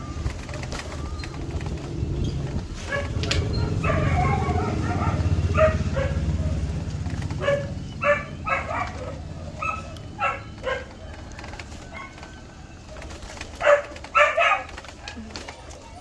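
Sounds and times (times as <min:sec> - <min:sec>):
vehicle engine rumble: 0:00.0 - 0:16.0
dog barking: 0:02.8 - 0:11.1, 0:13.4 - 0:15.5.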